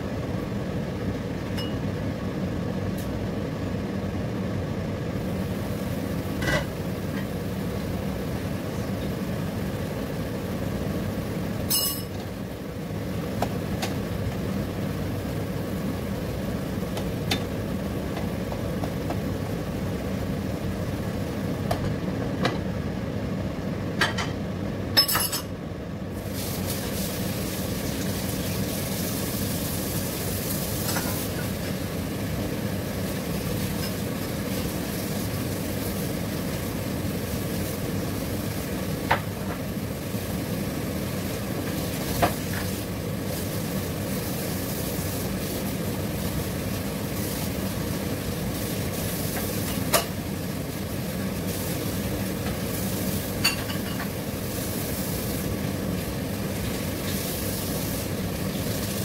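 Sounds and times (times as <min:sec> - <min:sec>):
food bubbling and sizzling in pan: 0:26.0 - 0:59.0.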